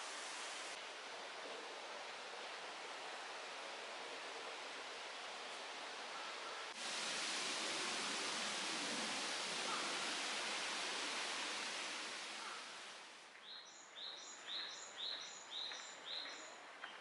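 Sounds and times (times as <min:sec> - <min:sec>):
stream running over stones: 0:00.0 - 0:13.4.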